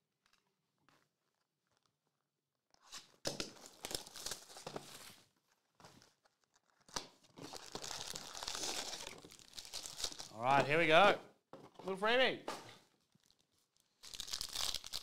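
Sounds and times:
shrink wrap crackling and crinkling: 0:00.0 - 0:10.9, 0:12.8 - 0:15.0.

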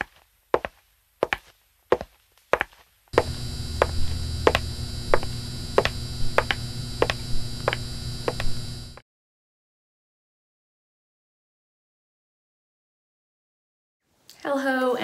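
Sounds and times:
high heels on hard floor: 0:00.0 - 0:08.6
neon sign buzzing: 0:03.2 - 0:09.0.

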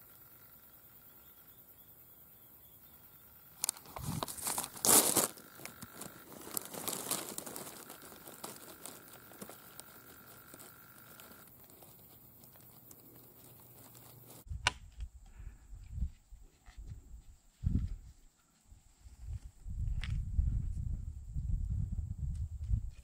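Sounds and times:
hand rubbing over microphone: 0:03.9 - 0:14.4.

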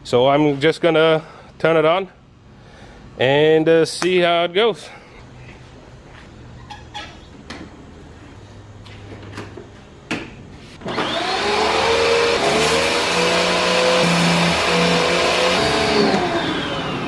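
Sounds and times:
pressure washer motor whine: 0:10.8 - 0:17.0.

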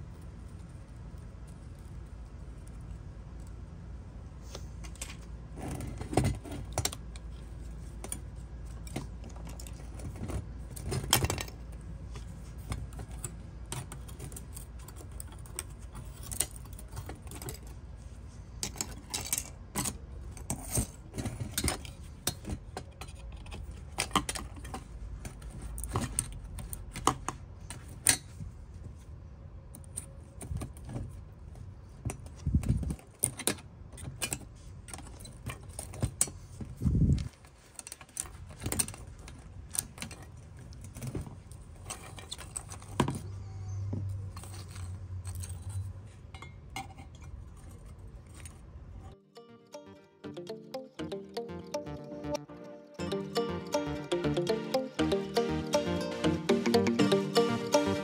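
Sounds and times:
small metal parts clicking and rattling: 0:12.6 - 0:17.8, 0:18.6 - 0:28.2, 0:44.3 - 0:48.6.

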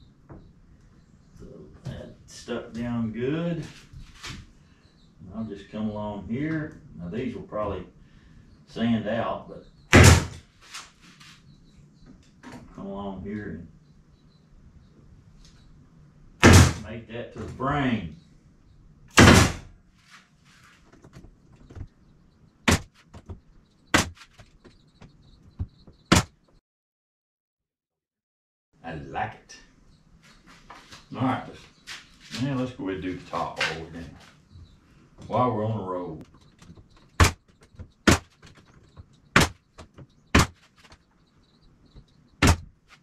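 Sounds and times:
staple gun shots: 0:19.2 - 0:19.7.

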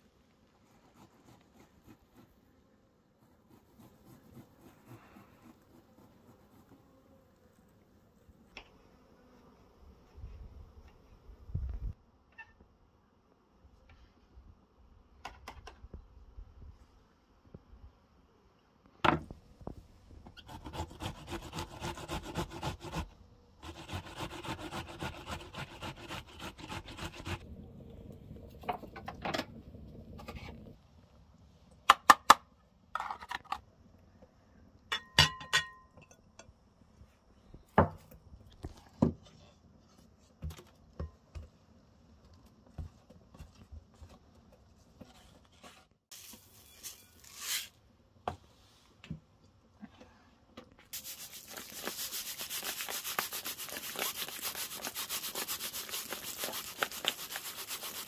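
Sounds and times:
onion grated on metal grater: 0:20.4 - 0:27.4, 0:51.0 - 0:58.0.

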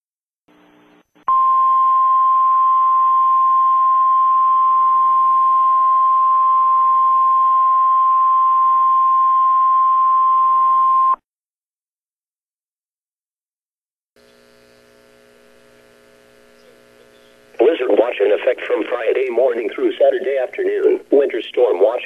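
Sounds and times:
light static hiss: 0:14.2 - 0:22.0.

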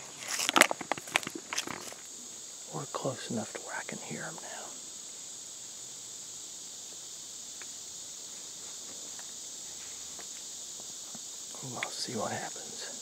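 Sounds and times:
insects chorus: 0:00.0 - 0:13.0
faint ticks: 0:07.5 - 0:07.8, 0:08.7 - 0:13.0.

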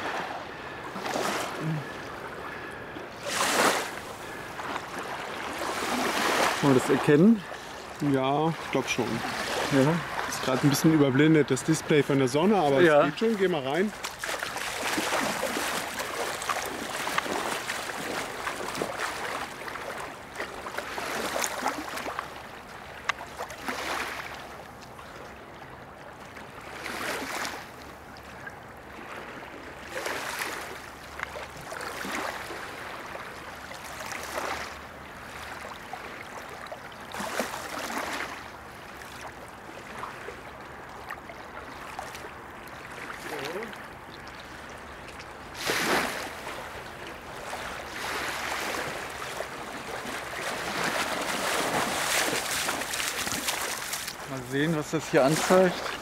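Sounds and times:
water splashing from swimmer: 0:12.6 - 0:24.5, 0:47.4 - 0:56.0.

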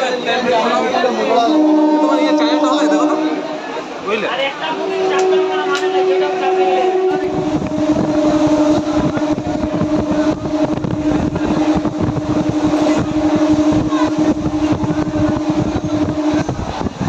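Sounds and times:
train wheels rumbling on track: 0:00.0 - 0:17.0
droning tone: 0:04.7 - 0:17.0.

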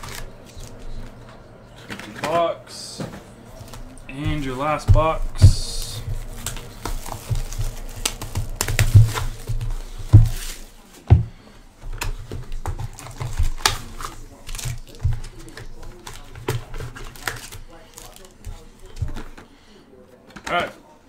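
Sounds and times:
wrapper crinkling: 0:00.0 - 0:01.2, 0:12.8 - 0:18.4
card packs clicking and thumping: 0:00.0 - 0:19.5.

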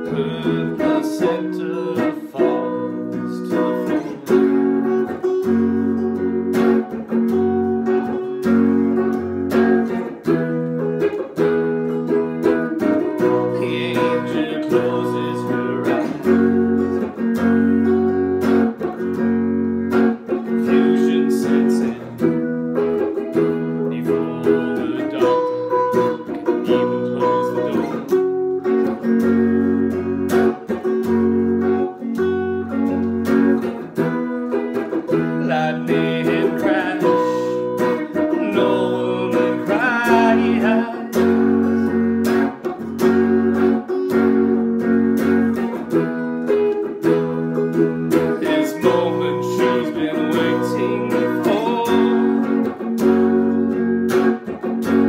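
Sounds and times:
man singing: 0:00.0 - 0:05.7, 0:12.4 - 0:17.2, 0:20.2 - 0:28.4, 0:33.6 - 0:42.6, 0:47.0 - 0:53.4
guitar strummed: 0:00.0 - 0:55.0.

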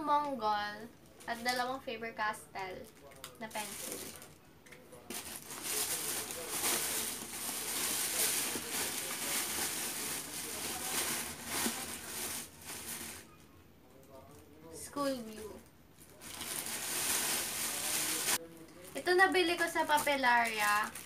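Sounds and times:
small crackles and taps: 0:02.8 - 0:03.4
packaging rustling: 0:02.9 - 0:04.4, 0:05.1 - 0:13.3, 0:16.0 - 0:21.0.

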